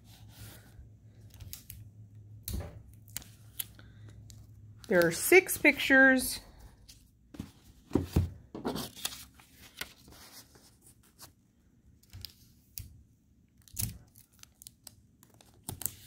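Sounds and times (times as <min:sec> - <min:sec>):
paper and tape rustling: 0:08.6 - 0:11.4, 0:13.6 - 0:16.0.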